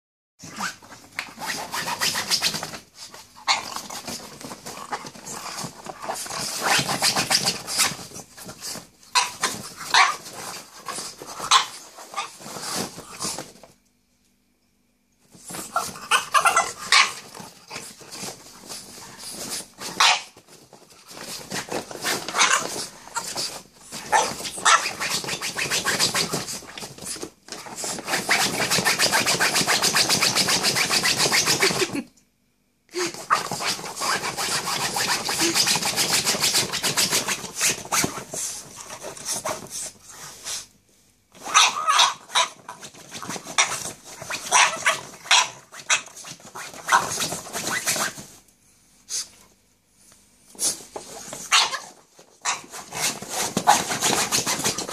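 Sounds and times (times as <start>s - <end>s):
dog claws scratching fabric: 0.4s - 13.5s, 15.3s - 31.9s, 33.3s - 40.6s, 41.4s - 48.3s, 50.6s - 54.9s
dog noises: 0.4s - 13.5s, 15.4s - 32.0s, 41.4s - 48.2s, 51.0s - 54.9s.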